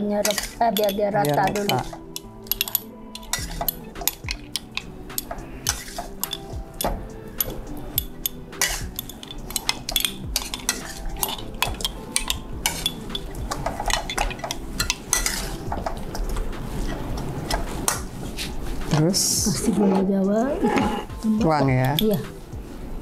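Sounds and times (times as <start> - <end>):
metal spatula scraping a wok: 0.2 - 6.5, 8.6 - 15.7, 19.6 - 21.2.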